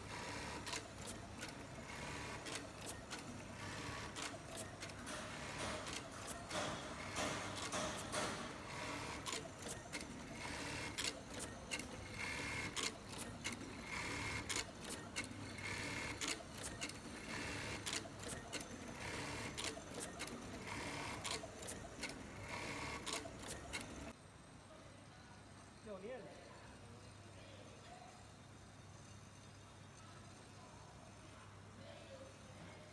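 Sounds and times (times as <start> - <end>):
sewing machine stitching: 0.0 - 24.1
machine mechanism clicks: 4.0 - 13.6.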